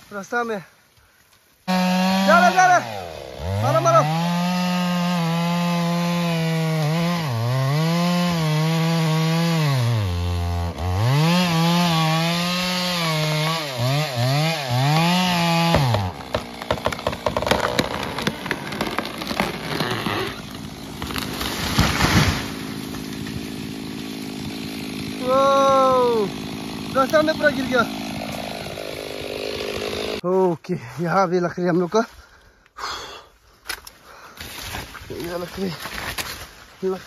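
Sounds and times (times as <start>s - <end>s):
chainsaw cutting: 1.6s - 30.3s
tree falling through branches: 15.0s - 25.2s, 34.4s - 36.8s.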